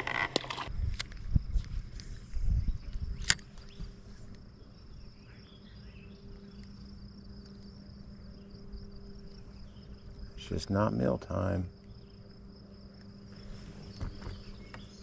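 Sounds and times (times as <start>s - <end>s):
insects trilling: 0.0s - 15.0s
faint low hum: 0.7s - 15.0s
sharp click: 3.2s - 3.7s.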